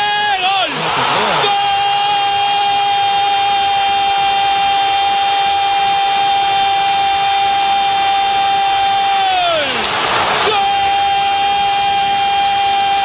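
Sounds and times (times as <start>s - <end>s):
commentator shouting goal: 0.0s - 9.8s.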